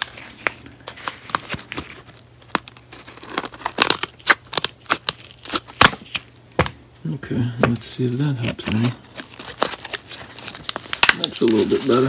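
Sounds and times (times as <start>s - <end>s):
packaging crinkling and crackling: 0.0s - 6.4s, 7.7s - 12.0s.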